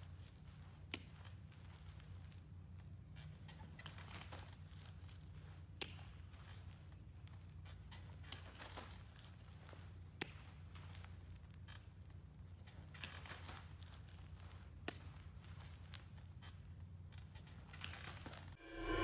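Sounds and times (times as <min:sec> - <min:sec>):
gear rustling and shuffling: 0:00.0 - 0:18.6
steady low hum: 0:18.6 - 0:19.0.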